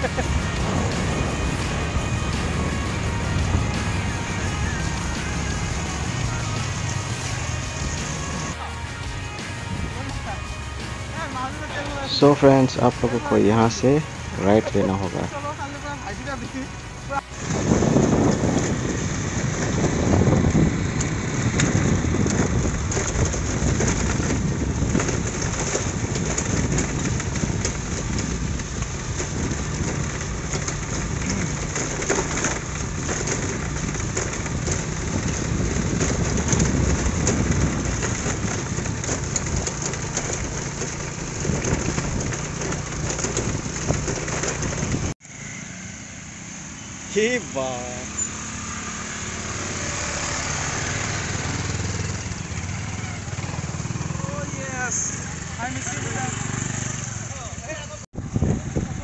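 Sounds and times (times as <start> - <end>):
wind rushing over microphone: 0.0 - 8.6, 9.6 - 10.2, 17.1 - 45.2, 58.1 - 59.0
motorbike engine running: 0.0 - 59.0.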